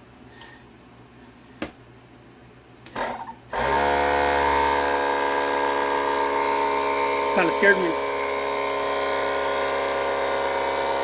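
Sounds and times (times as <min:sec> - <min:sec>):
small air compressor running: 0:03.0 - 0:11.0.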